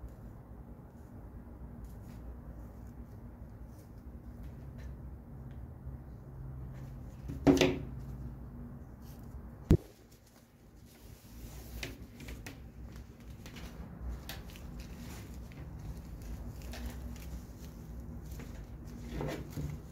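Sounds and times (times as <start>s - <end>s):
soft taps and rustles of handling: 9.0s - 19.9s.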